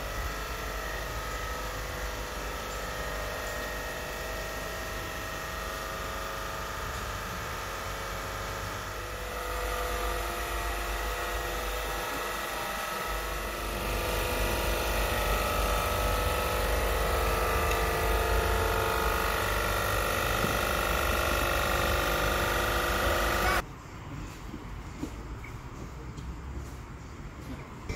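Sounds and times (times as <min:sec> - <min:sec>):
low machinery rumble: 0:00.0 - 0:23.6
refrigeration machinery hum: 0:00.0 - 0:27.9
machinery whining tones: 0:09.0 - 0:23.6.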